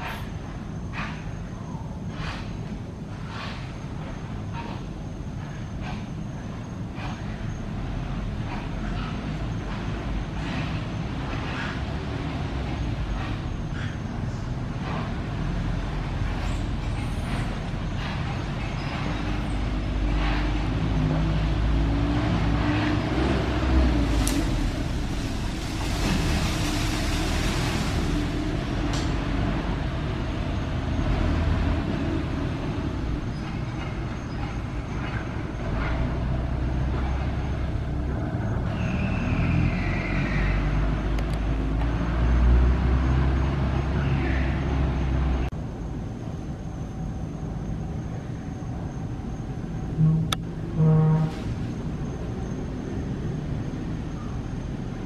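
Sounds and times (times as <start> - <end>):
low background rumble: 0.0 - 42.7
high falling squeal: 38.4 - 40.8.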